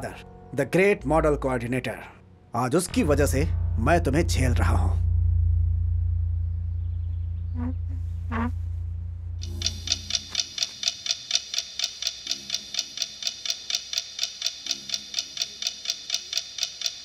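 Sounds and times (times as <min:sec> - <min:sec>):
low pulsing note: 0:02.9 - 0:10.6
clock-like ticking: 0:09.4 - 0:17.0.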